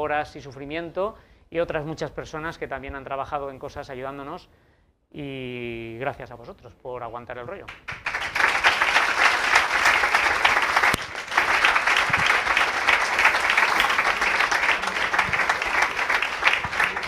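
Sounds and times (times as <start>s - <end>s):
audience applauding: 7.7s - 17.0s.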